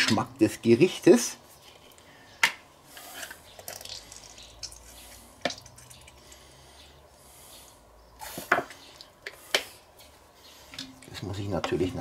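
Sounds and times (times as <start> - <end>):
sauce dripping and squirting: 3.2 - 6.4.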